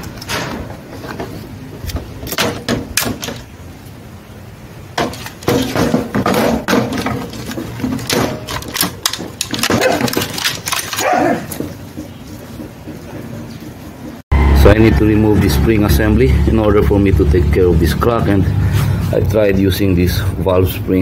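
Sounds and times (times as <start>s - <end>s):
plastic parts clattering: 5.0s - 12.0s.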